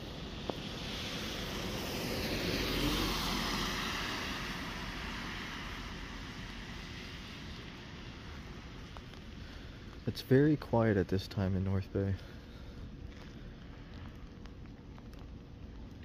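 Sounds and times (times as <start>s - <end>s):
vehicle passing by: 0.6s - 6.1s.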